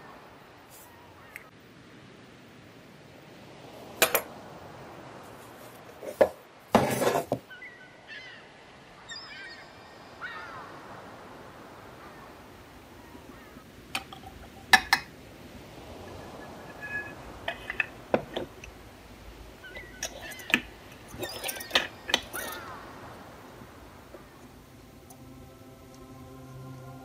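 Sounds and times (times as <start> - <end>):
metal parts clinking on wood: 19.8 - 22.6.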